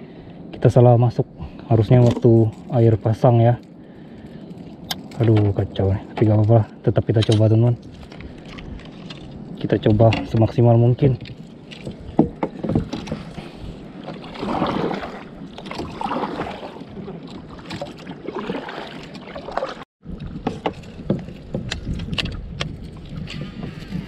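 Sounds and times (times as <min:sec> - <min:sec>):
paddle swishing through water: 0:07.8 - 0:09.4, 0:11.2 - 0:24.0
sharp clicks and knocks: 0:20.2 - 0:22.8.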